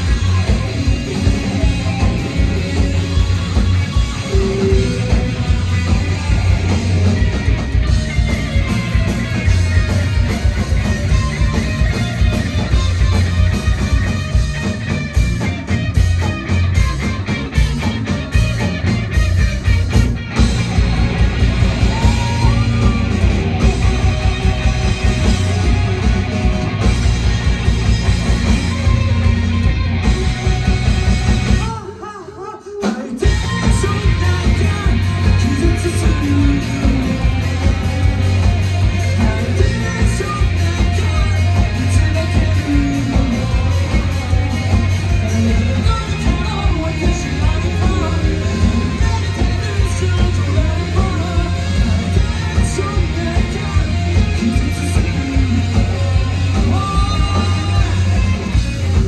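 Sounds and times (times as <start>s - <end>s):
live rock band playing: 0.0s - 59.0s
person singing: 31.6s - 59.0s.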